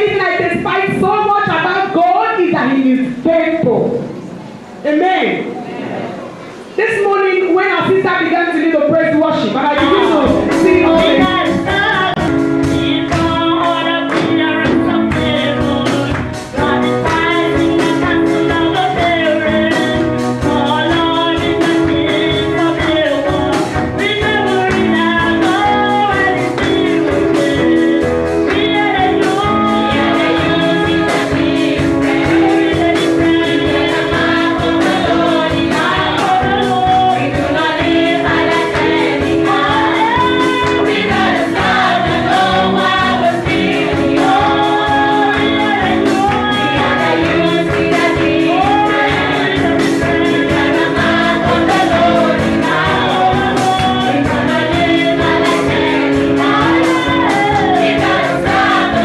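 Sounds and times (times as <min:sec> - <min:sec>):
women singing gospel: 0:09.0 - 0:59.0
steady beat: 0:09.8 - 0:12.6.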